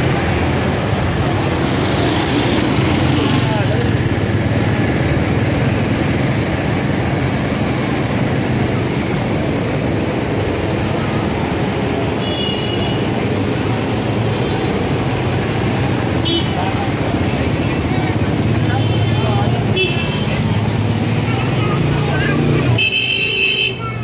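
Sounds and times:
low traffic rumble: 0.0s - 24.0s
motorcycles and cars passing: 0.0s - 24.0s.

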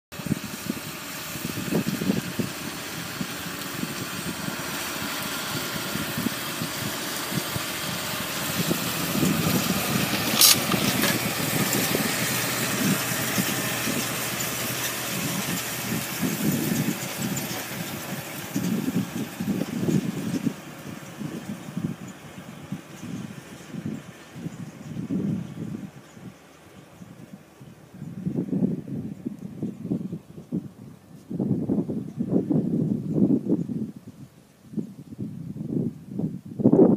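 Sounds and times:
tractor engine running under load: 0.1s - 33.8s
wind buffeting microphone: 0.1s - 36.9s
sharp click: 10.4s - 11.2s.

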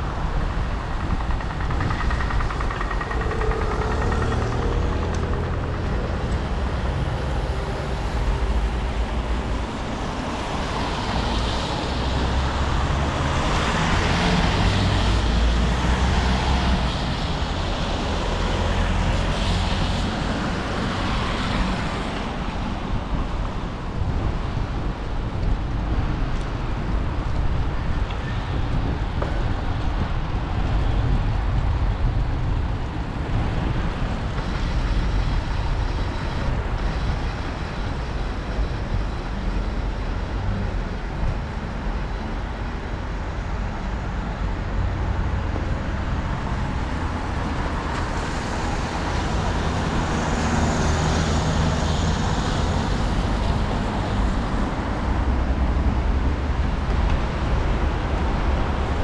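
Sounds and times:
wind buffeting microphone: 0.0s - 59.0s
tyres on wet pavement: 44.8s - 59.0s.

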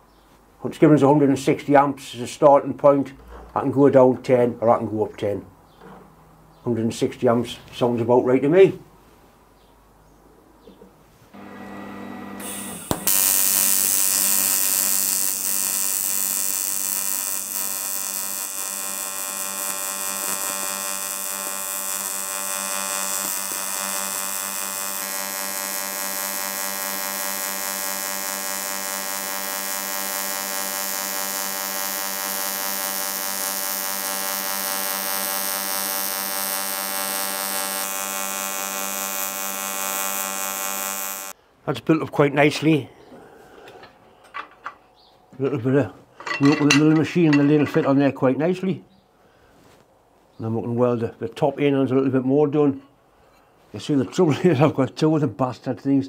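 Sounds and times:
welding arc buzzing: 11.4s - 41.4s.

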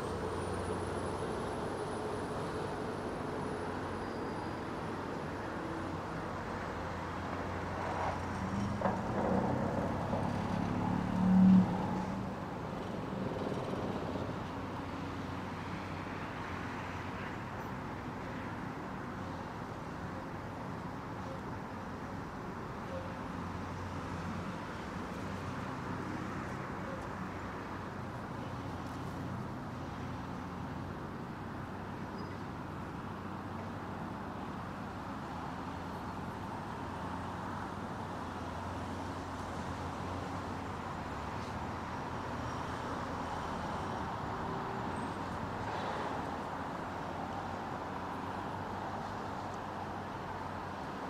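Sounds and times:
tyres rumbling on road: 0.0s - 21.0s.

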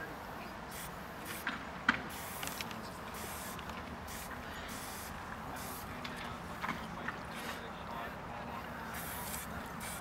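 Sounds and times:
spray paint can hissing: 0.7s - 6.0s, 8.9s - 10.0s.

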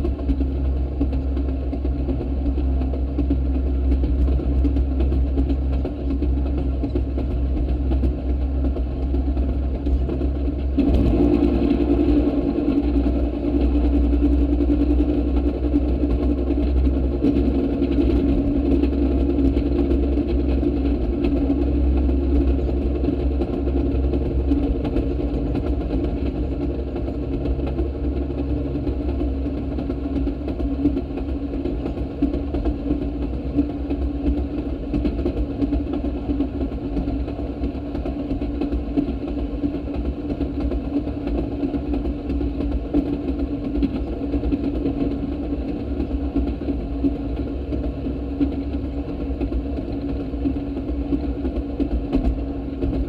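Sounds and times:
small engine running: 0.0s - 53.0s
wheels rumbling on rails: 0.0s - 53.0s.

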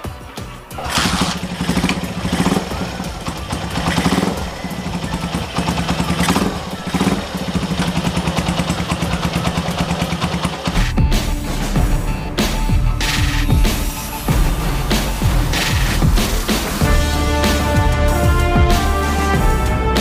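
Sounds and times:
motorcycle engine starting and revving: 0.7s - 11.1s, 13.0s - 18.2s.

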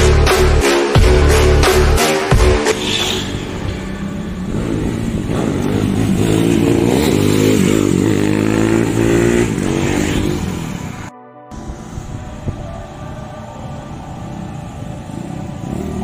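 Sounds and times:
motorcycle engine revving past: 2.7s - 12.4s, 13.7s - 16.0s.

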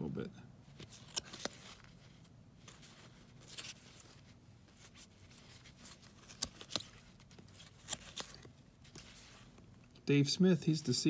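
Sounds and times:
cards rustling and sliding: 0.7s - 10.0s
card edges flicking: 6.1s - 9.1s.

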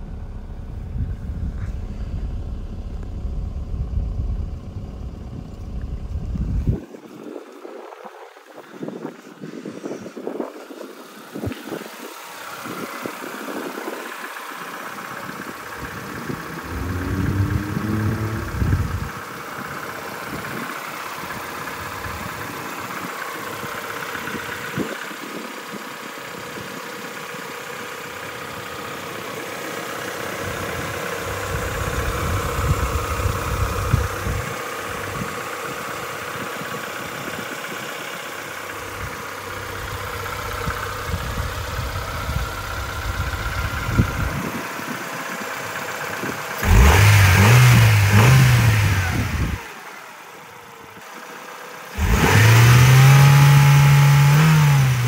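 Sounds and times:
wind rumbling on microphone: 0.0s - 14.1s, 15.4s - 19.3s, 30.4s - 35.5s, 38.9s - 45.0s
car engine idling: 0.0s - 55.0s.

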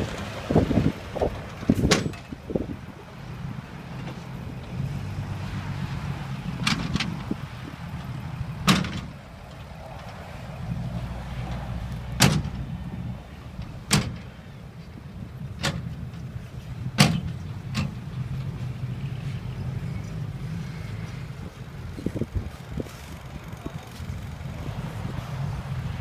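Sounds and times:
diesel truck engines running: 0.0s - 26.0s
sharp metallic knocks: 8.6s - 9.2s, 12.1s - 12.6s, 13.9s - 14.4s, 16.9s - 18.0s.

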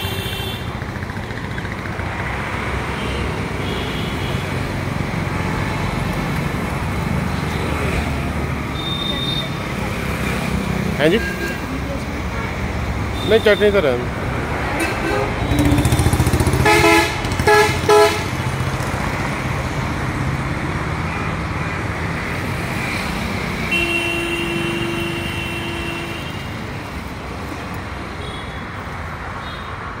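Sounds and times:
vehicle horns: 0.0s - 0.8s, 2.8s - 4.6s, 8.6s - 9.7s, 11.0s - 11.8s, 13.1s - 14.0s, 14.7s - 18.5s, 23.6s - 26.6s, 28.2s - 28.8s
road traffic: 0.0s - 30.0s.

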